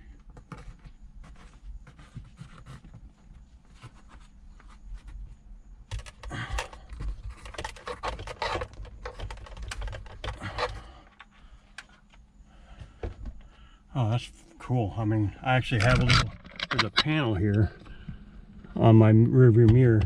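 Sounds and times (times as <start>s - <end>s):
cable clicks and scratchy rubbing: 5.9s - 12.2s, 15.7s - 20.0s.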